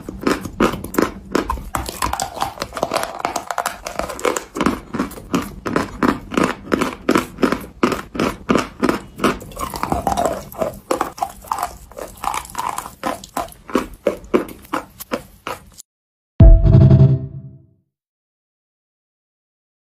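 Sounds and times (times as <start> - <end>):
chewing crunchy chalk: 0.0 - 15.9.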